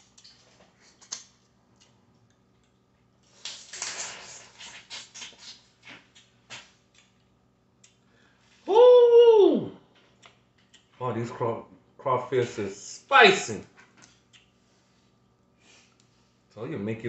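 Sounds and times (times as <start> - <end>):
wet sucking and cracking: 3.2 - 7.2.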